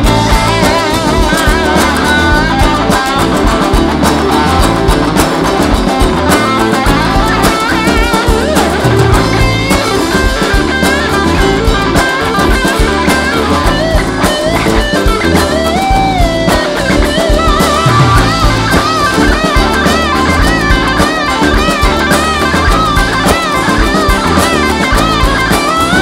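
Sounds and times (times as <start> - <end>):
drum kit: 0.0 - 26.0
electric guitar lead melody: 0.0 - 26.0
strummed acoustic guitar: 0.0 - 26.0.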